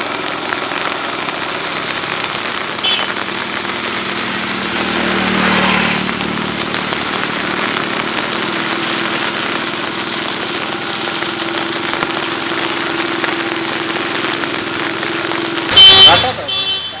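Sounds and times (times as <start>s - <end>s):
heavy rain hiss: 0.0s - 17.0s.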